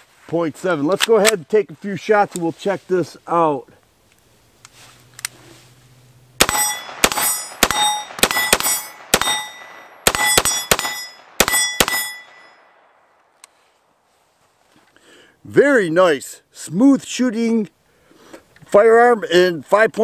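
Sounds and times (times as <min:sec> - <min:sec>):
pistol shots: 0:06.4 - 0:12.5
metallic ringing: 0:06.4 - 0:13.0.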